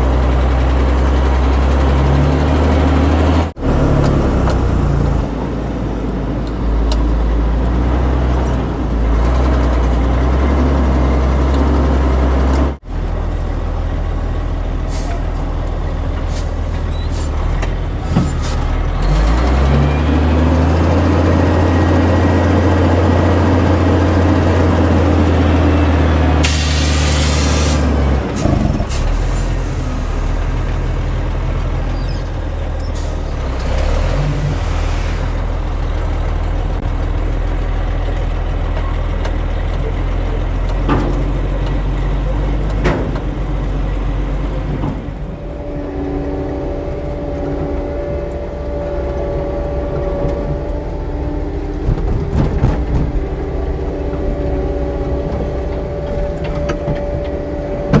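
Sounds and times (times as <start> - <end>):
diesel machinery engine running: 0.0 - 58.0
hissing air burst: 26.4 - 27.9.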